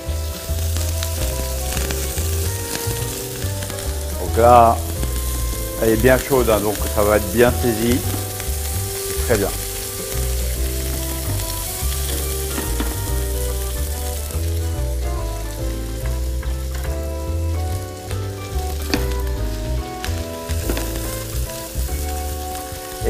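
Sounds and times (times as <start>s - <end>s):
background music with bass line: 0.0s - 23.0s
lobster sizzling in frying pan: 0.0s - 23.0s.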